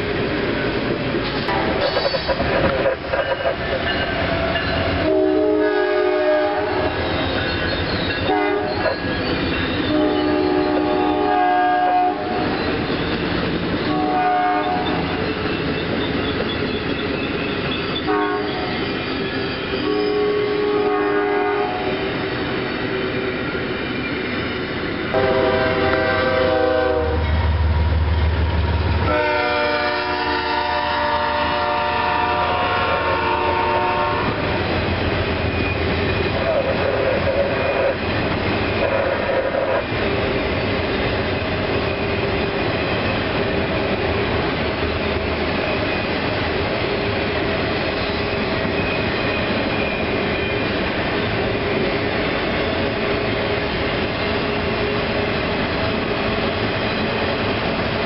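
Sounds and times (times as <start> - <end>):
train cars rolling clatter: 0.0 - 11.2, 11.9 - 58.0
deep train rumble: 0.0 - 58.0
train horn blasts: 5.0 - 7.0, 8.2 - 9.0, 9.9 - 12.6, 13.9 - 15.2, 18.0 - 18.7, 19.8 - 22.1, 25.1 - 27.3, 29.0 - 34.6.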